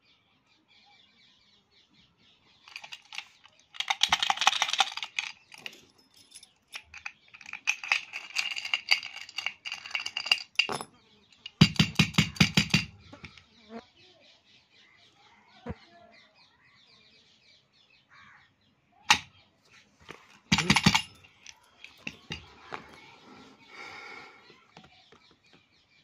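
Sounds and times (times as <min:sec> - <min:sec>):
metal padlock rattling: 0:02.7 - 0:13.4, 0:20.1 - 0:23.0.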